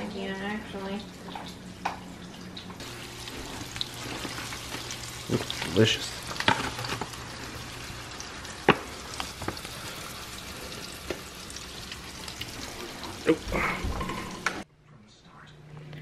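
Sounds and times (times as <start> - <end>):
fish sizzling in oil: 0.8 - 13.4.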